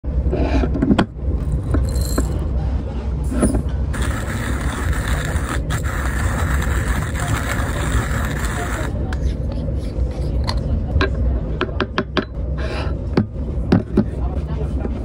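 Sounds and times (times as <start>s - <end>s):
low rumble of moving train: 0.1s - 9.2s, 10.0s - 15.0s
hand grinder grinding coffee beans: 3.9s - 9.0s.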